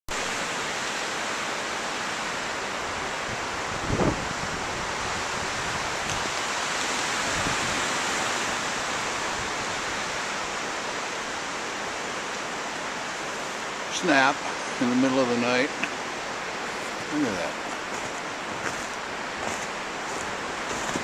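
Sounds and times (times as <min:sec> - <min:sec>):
wind rushing through trees: 0:00.1 - 0:21.0
wind gust buffeting microphone: 0:02.8 - 0:06.4, 0:07.0 - 0:10.2.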